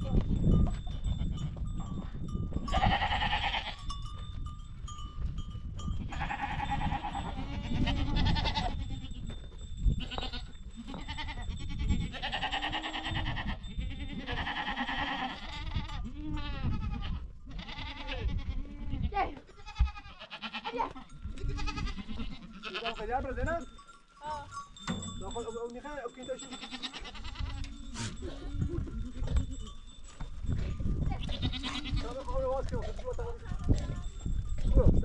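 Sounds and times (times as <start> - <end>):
goats bleating: 2.6 - 3.8, 6.1 - 9.3, 10.0 - 23.3, 26.3 - 29.7, 31.1 - 32.6.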